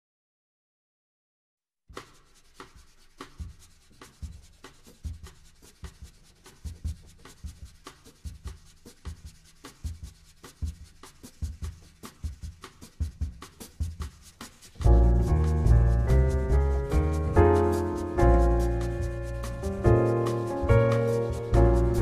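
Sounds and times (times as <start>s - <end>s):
brush-like percussion strokes: 1.9s - 22.0s
low drum thumps: 14.8s - 22.0s.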